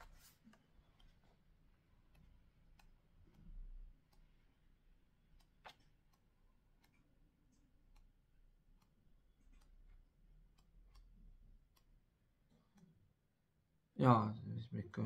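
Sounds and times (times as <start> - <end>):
faint clicks and ticks: 0.0 - 13.3.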